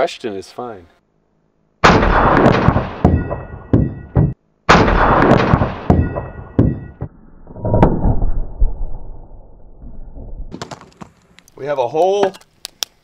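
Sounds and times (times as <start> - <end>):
rifle shot hitting metal pot: 1.8 - 7.0.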